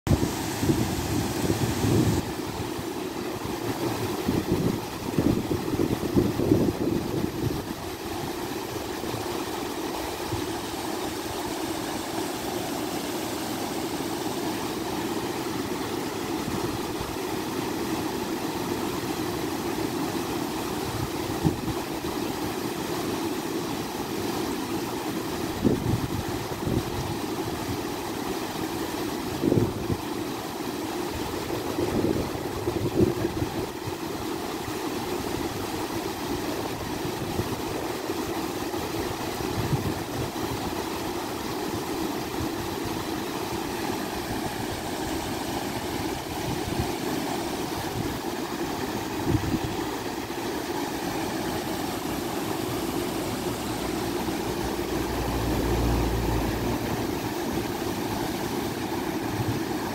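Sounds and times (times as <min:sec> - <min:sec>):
river water pouring over weir: 0:00.1 - 0:59.9
wind buffeting microphone: 0:49.2 - 0:50.0.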